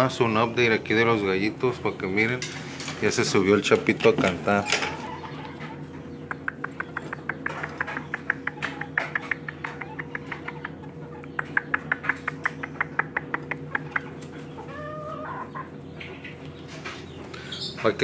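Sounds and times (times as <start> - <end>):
steady hum: 0.0 - 18.0
rapid sharp clicks: 6.3 - 10.7.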